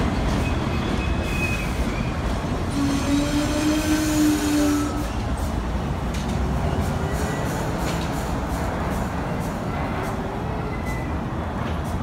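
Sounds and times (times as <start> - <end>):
subway train rumbling: 0.0 - 12.0.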